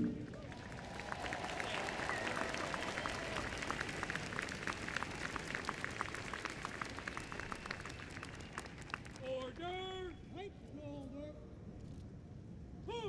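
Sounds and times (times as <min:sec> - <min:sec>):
crowd applauding: 0:00.3 - 0:09.7.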